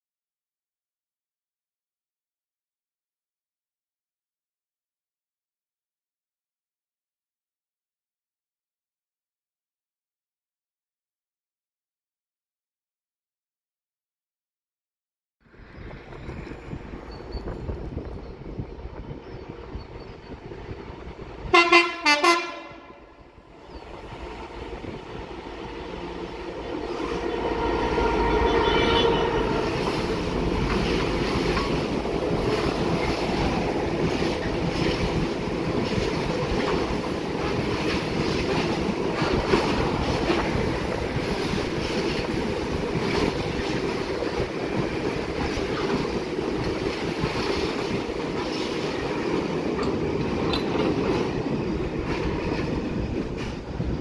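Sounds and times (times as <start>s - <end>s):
train engine rumbling: 15.5s - 54.0s
locomotive horn blasts: 21.4s - 23.2s, 26.8s - 30.0s.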